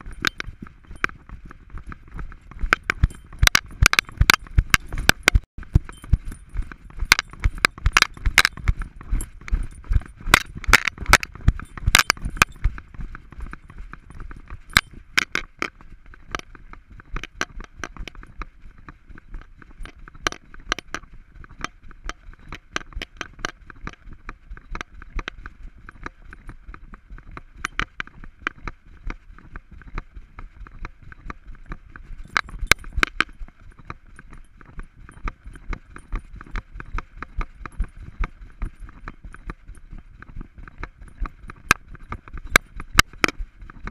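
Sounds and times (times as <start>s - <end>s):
camera harness knocks and rattles: 0.0s - 18.4s.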